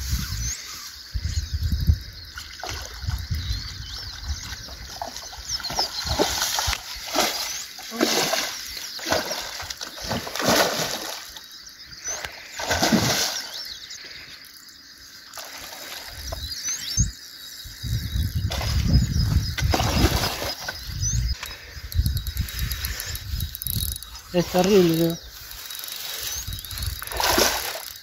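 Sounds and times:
fish thrashing and splashing: 4.7 - 11.4, 12.5 - 13.6, 19.6 - 20.8, 25.6 - 28.0.

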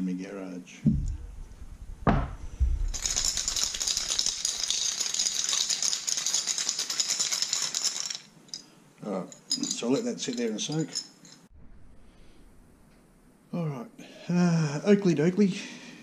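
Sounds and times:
knock: 0.8 - 1.2, 2.0 - 2.9
metal parts rattling in glass jar: 2.8 - 11.5.

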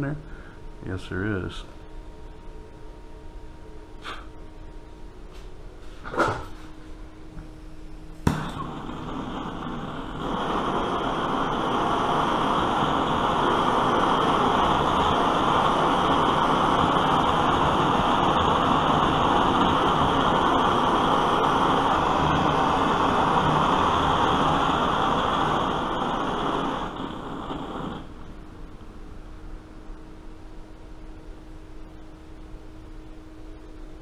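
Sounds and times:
blowtorch burner hissing: 8.2 - 28.6.

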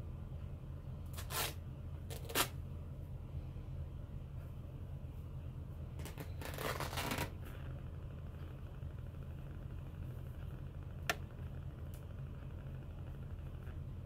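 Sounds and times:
low room hum: 0.0 - 14.0
fabric crackling and straining: 6.0 - 7.7.

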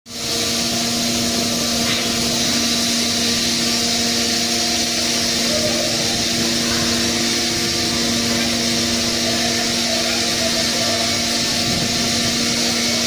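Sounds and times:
heavy machinery humming: 0.1 - 13.0
machinery hiss: 0.1 - 13.0.

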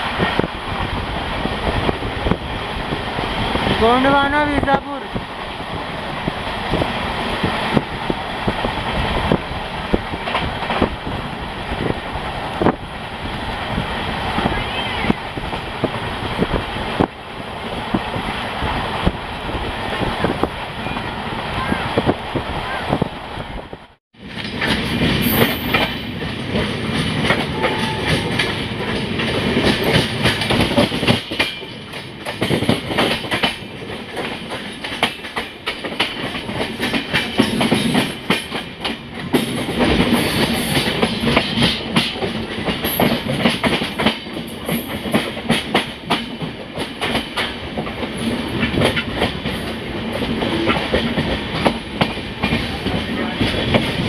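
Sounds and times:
train wheels clattering over rails: 5.1 - 14.5, 24.2 - 54.0.

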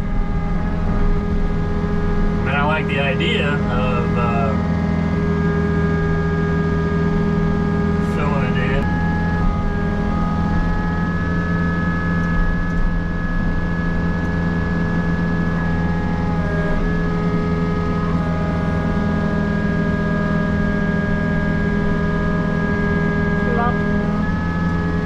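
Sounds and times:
excavator diesel engine running: 0.0 - 25.0.

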